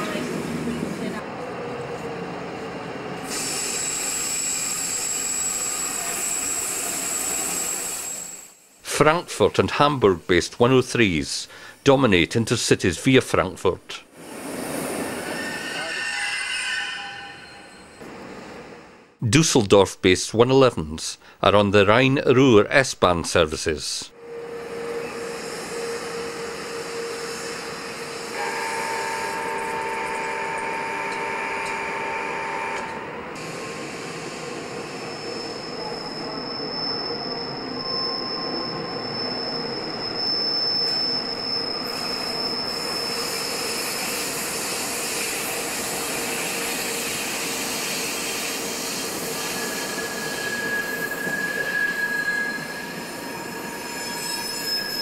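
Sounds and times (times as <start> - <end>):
train wheels squealing on rails: 3.1 - 8.8, 14.2 - 18.8, 24.2 - 55.0.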